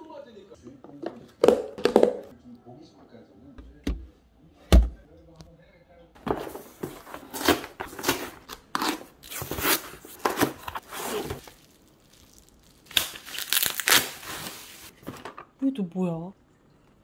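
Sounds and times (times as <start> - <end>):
cardboard and foil pouch rustling: 6.2 - 15.4
packaging tearing: 6.8 - 14.9.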